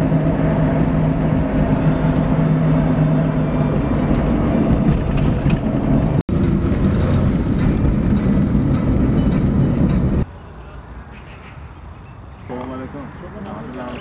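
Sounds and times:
low hum: 0:00.0 - 0:10.2
car road and engine noise: 0:00.0 - 0:14.0.

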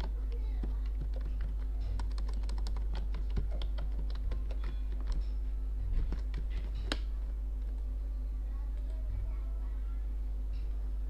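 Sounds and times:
keyboard keystroke clicks: 0:00.0 - 0:05.2
steady low hum: 0:00.0 - 0:11.0.

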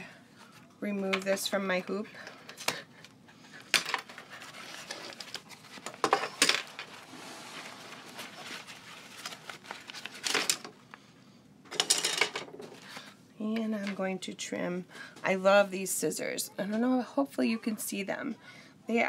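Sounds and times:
vinyl crinkling: 0:04.0 - 0:11.0.

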